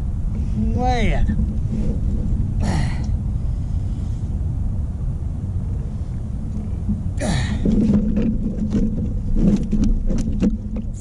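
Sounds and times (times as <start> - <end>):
low hum: 0.0 - 11.0
wind rumble on microphone: 0.0 - 11.0.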